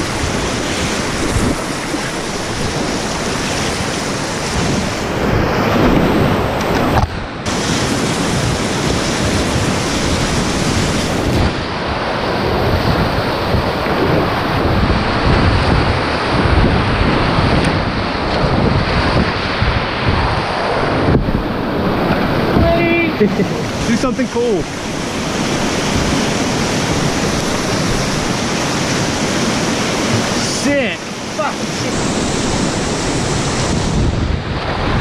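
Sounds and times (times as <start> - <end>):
whitewater rapids rushing: 0.0 - 35.0
paddle strokes splashing: 19.3 - 33.8.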